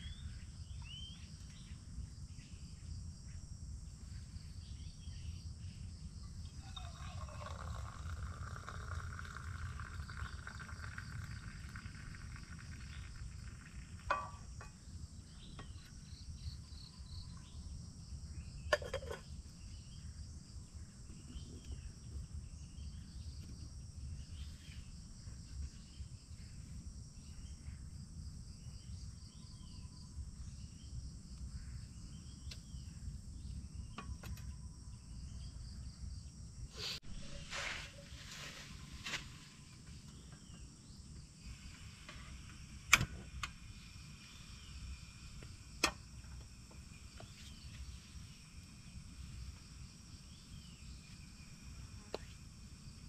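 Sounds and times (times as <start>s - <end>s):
insects chorus: 0.0s - 53.0s
coffee pouring into steel mug: 6.6s - 14.6s.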